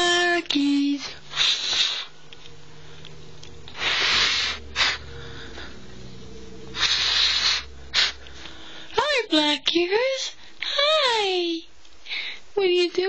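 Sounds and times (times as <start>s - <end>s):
breathy hissing puffs: 1.0s - 3.0s, 3.7s - 6.0s, 6.7s - 9.0s.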